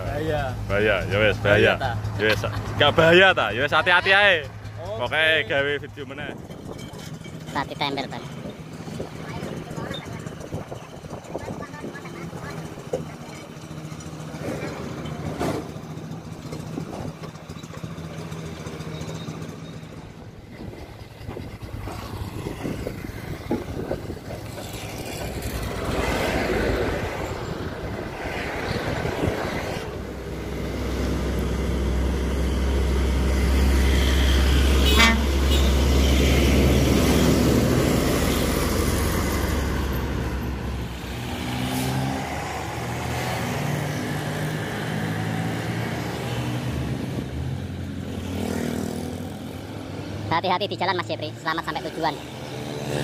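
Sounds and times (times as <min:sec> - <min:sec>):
truck diesel engine: 0:00.0 - 0:53.0
truck horn toot: 0:34.0 - 0:36.4.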